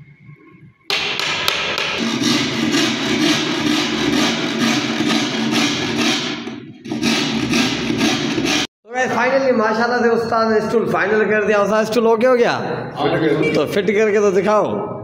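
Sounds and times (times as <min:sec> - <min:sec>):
hammer striking wood chisel: 0:00.9 - 0:08.7.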